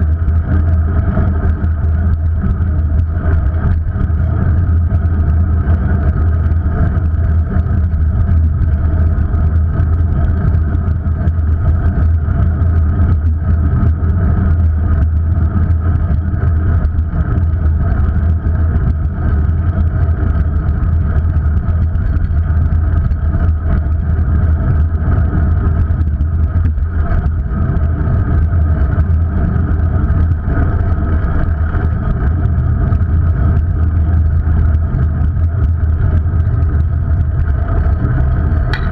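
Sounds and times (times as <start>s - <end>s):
droning hum: 0.0s - 38.9s
rumble of wind and rolling wheels: 0.0s - 38.9s.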